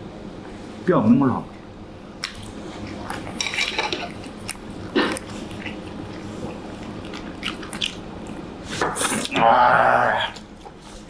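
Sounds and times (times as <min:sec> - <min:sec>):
chewing: 0:02.2 - 0:11.0.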